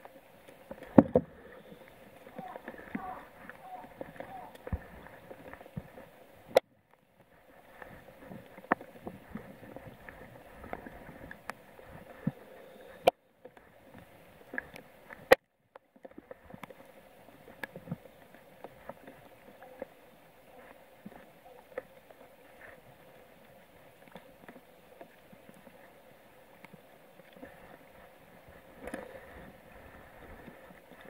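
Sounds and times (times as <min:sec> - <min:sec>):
light rain: 0:00.0 - 0:06.6
water: 0:00.0 - 0:31.0
ticks and knocks on plastic kayak: 0:00.7 - 0:01.4.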